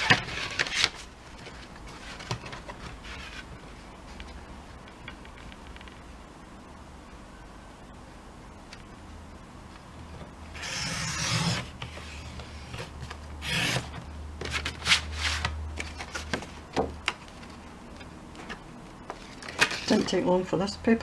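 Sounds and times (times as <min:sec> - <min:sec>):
paper trimmer rasping stroke: 0:10.6 - 0:11.7.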